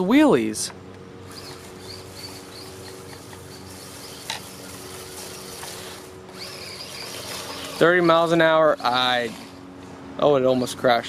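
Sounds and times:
steady low hum: 0:00.0 - 0:11.0
electric toy motor whine: 0:01.2 - 0:09.7.

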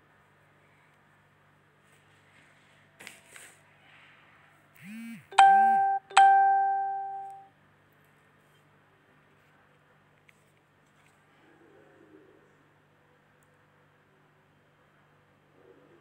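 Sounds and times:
short low tones: 0:04.8 - 0:07.4
electronic ding-dong chime: 0:05.3 - 0:07.5.

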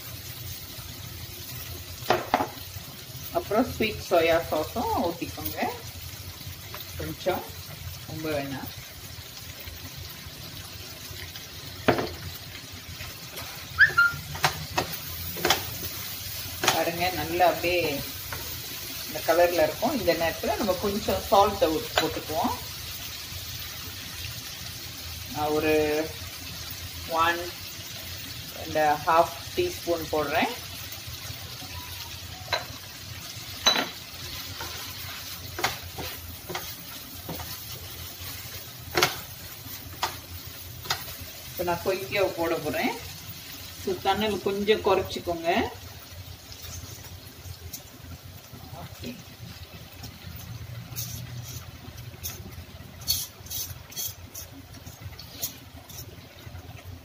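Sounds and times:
seafood sizzling in frying pan: 0:00.0 - 0:57.0
utensils knocking on pan: 0:02.0 - 0:02.6, 0:11.8 - 0:12.2, 0:14.3 - 0:15.7, 0:16.6 - 0:16.9, 0:32.4 - 0:32.8, 0:33.6 - 0:34.0, 0:35.5 - 0:37.6, 0:38.9 - 0:39.3
wooden spatula knocking on pan: 0:02.1 - 0:02.6, 0:11.8 - 0:12.2
spatula squeak: 0:13.7 - 0:14.3
spatula stirring and scraping: 0:33.6 - 0:41.6, 0:46.5 - 0:47.1, 0:50.4 - 0:56.3.

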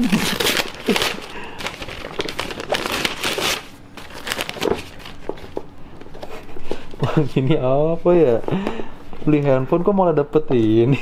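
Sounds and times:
packaging crinkling and rustling: 0:00.0 - 0:07.3.

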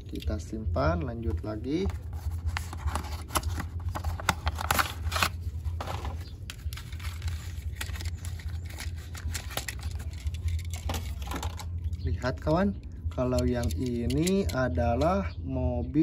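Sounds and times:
steady low hum: 0:00.0 - 0:16.0
cardboard box rustling: 0:01.8 - 0:11.3.

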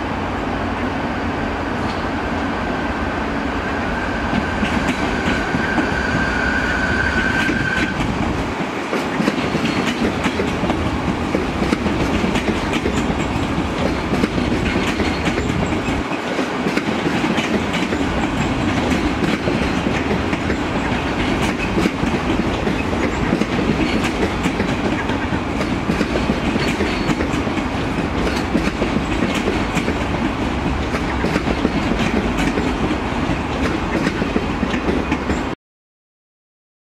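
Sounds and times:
train rumbling past: 0:00.0 - 0:35.6
wheels clicking over rail joints: 0:07.9 - 0:35.5.

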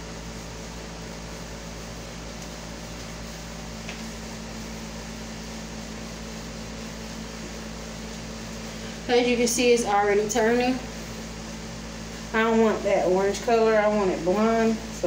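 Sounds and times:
air conditioner humming: 0:00.0 - 0:15.0.

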